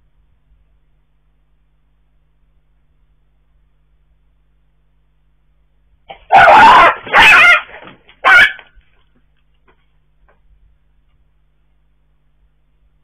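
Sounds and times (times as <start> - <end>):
dog yelping: 6.1 - 8.7.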